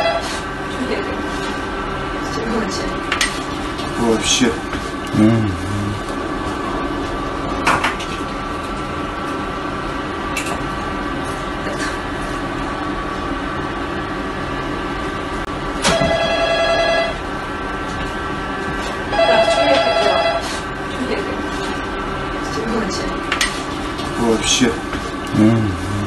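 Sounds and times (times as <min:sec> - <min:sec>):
steady background hum: 0:00.0 - 0:26.0
loud ringing tone: 0:15.9 - 0:17.2.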